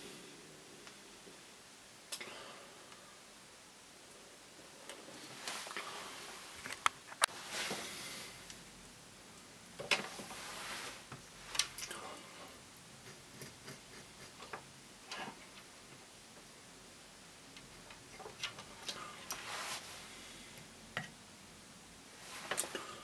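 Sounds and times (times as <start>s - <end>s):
short rustling scrapes: 10.1s - 11.1s, 19.4s - 20.0s.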